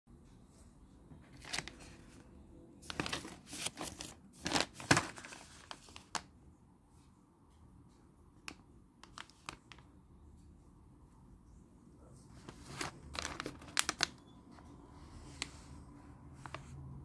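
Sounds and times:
plastic pouch crinkling: 1.4s - 2.0s, 2.8s - 6.3s, 9.0s - 9.9s, 12.5s - 14.3s.

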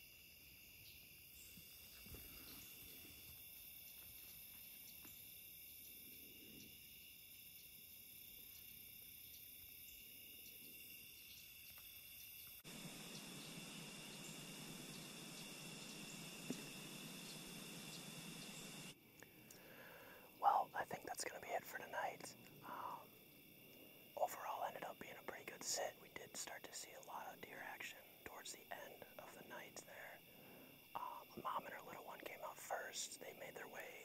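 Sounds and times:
crickets and insects chirping: 0.0s - 34.0s
even hiss: 12.4s - 34.0s.

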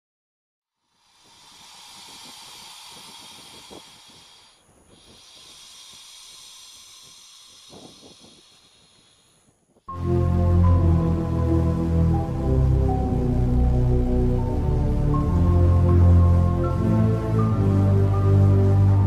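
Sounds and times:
snake hissing breaths: 0.8s - 9.9s.

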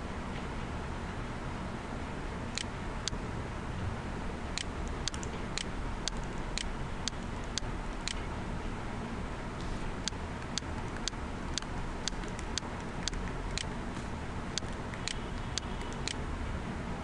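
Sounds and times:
low background hum: 0.0s - 17.0s
sharp ticking clicks: 2.5s - 3.2s, 4.6s - 8.2s, 10.0s - 13.9s, 14.5s - 16.2s.

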